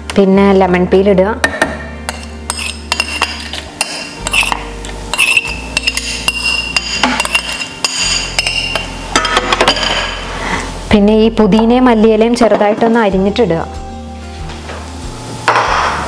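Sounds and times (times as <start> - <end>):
spoon scraping and clinking: 2.1 - 8.8.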